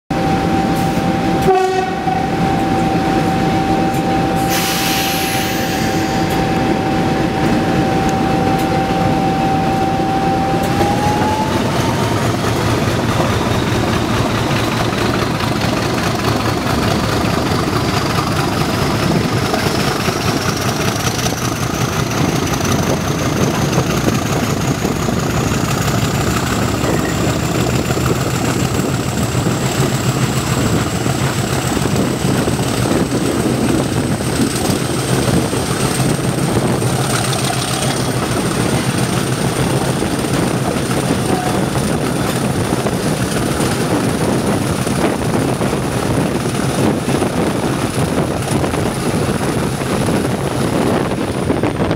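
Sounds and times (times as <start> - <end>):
high whine rising in pitch: 0.1 - 12.6
diesel locomotive engine working hard: 0.1 - 51.9.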